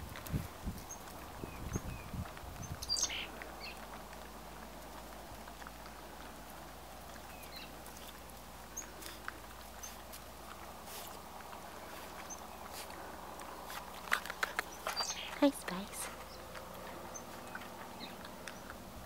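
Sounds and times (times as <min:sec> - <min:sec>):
songbird chirping: 0:00.8 - 0:19.0.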